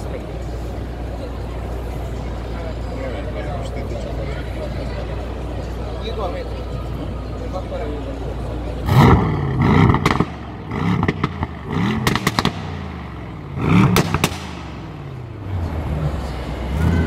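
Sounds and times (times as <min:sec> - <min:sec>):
car engine idling: 0:00.0 - 0:17.0
car engine revving: 0:08.7 - 0:17.0
exhaust crackles and pops: 0:08.9 - 0:14.8.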